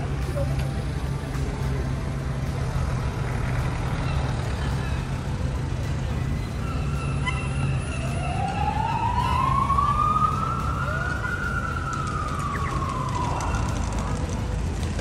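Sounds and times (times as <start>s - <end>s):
city traffic rumble: 0.0s - 15.0s
siren wailing: 6.6s - 14.2s.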